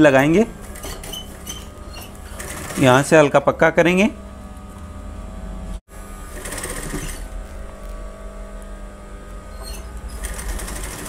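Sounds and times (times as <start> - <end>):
sewing machine motor humming: 0.0 - 4.8, 6.2 - 11.0
sewing machine needle rattling: 0.2 - 3.0, 10.1 - 11.0.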